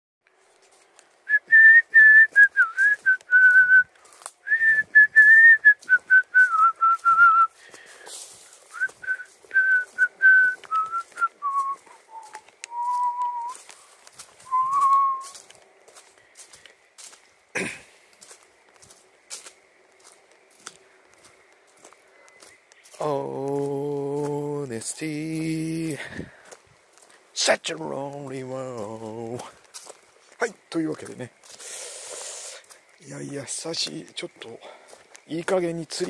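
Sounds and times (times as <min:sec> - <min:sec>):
footsteps on leafy dirt path: 0:00.3 - 0:36.0
man whistling a slow tune: 0:01.3 - 0:07.6, 0:08.7 - 0:15.4.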